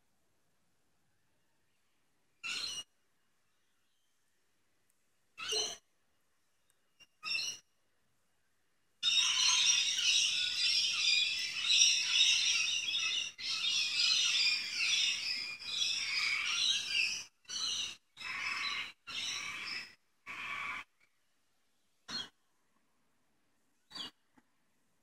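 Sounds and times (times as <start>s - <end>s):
small birds chirping: 1.6s - 4.4s, 5.4s - 5.8s, 6.6s - 7.7s, 9.0s - 21.2s, 22.0s - 22.5s, 23.8s - 24.4s.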